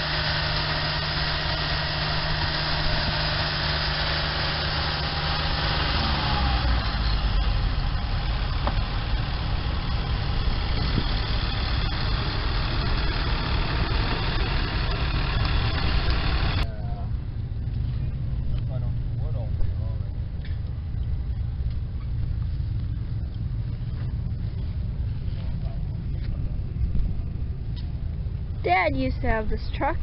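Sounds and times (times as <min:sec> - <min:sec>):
sawmill engine running: 0:00.0 - 0:16.7.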